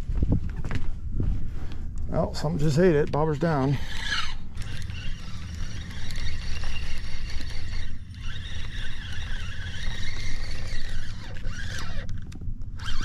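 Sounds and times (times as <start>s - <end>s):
wind rumble on microphone: 0.0s - 13.0s
fishing reel whirring: 2.8s - 13.0s.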